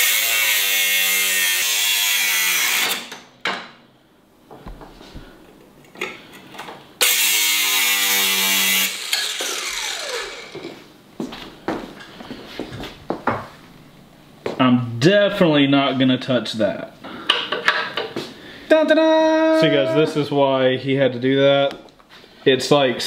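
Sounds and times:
angle grinder cutting metal: 0.0 - 3.2, 7.0 - 10.7
grinder disc winding down: 7.0 - 10.8.

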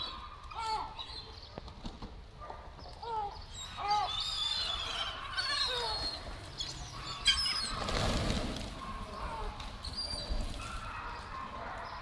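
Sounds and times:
gulls calling: 3.0 - 12.0
pigeons wings flapping: 7.7 - 10.7.

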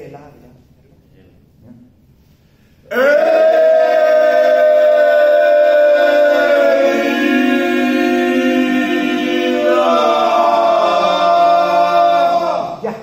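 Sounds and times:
men chanting: 2.9 - 12.9.

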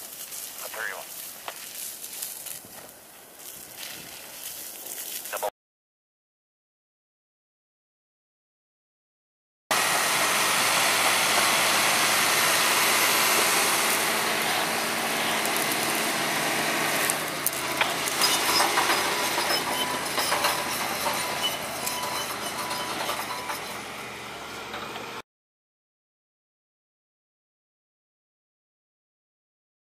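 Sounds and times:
sharp cracks and crunches: 0.0 - 5.4, 15.4 - 16.2
bulldozer engine and tracks: 9.7 - 25.2.

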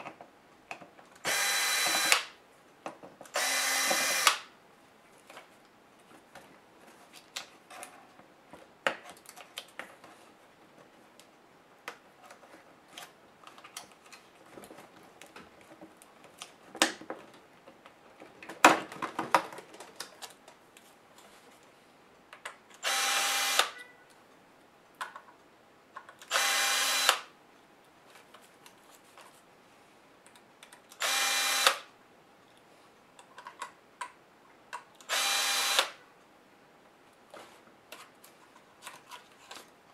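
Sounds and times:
cordless screwdriver whirring: 1.3 - 2.2, 3.4 - 4.4, 22.8 - 23.8, 26.3 - 27.3, 31.0 - 31.9, 35.1 - 36.0.

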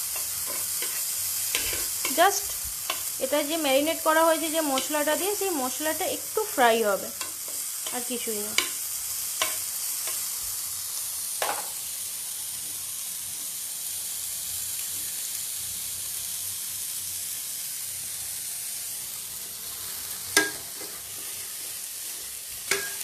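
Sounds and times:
spatula scraping a pan: 0.0 - 3.2, 19.8 - 23.0
chicken sizzling in a frying pan: 0.0 - 23.0
spatula clacking against a pan: 2.8 - 3.2, 7.2 - 8.8, 9.4 - 10.3, 20.4 - 20.9, 22.6 - 23.0.

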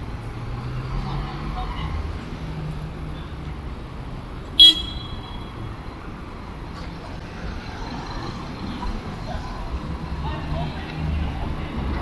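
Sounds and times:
city street traffic: 0.0 - 12.0
loud high-pitched beep: 4.6 - 5.5.

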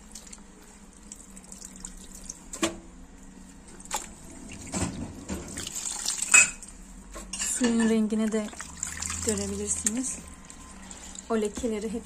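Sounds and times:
water sloshing: 3.6 - 6.9, 8.1 - 11.9
short water splashes: 8.3 - 10.0.

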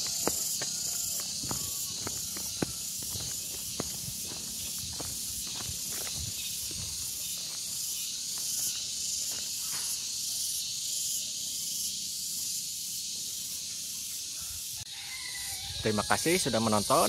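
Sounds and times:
footsteps on dirt path: 0.0 - 10.0
insects chorus: 0.0 - 17.0.

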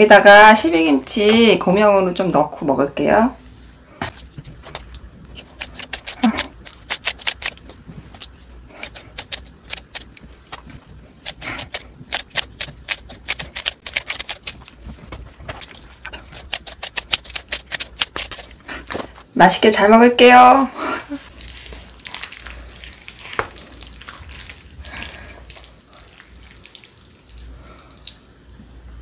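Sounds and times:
scissors snipping cabbage: 4.2 - 14.7, 15.6 - 18.6.

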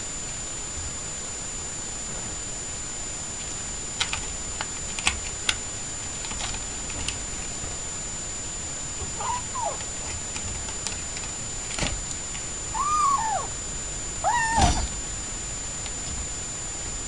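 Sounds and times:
kitten meowing: 9.1 - 9.8, 12.7 - 13.6, 14.2 - 14.9.

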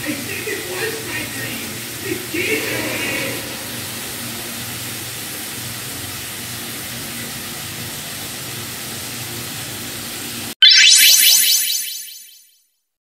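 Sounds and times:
steady background hiss: 0.0 - 5.2.

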